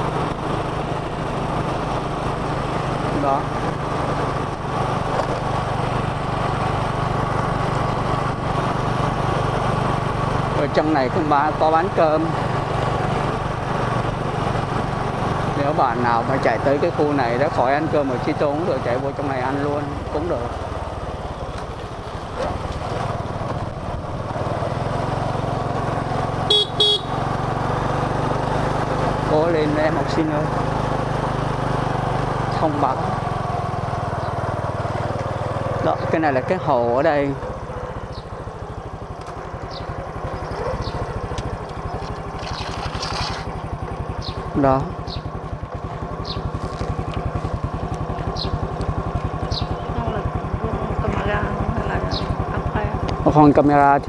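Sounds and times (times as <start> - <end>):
motorbike engine running: 0.0 - 54.0
horn beeps: 26.5 - 27.2.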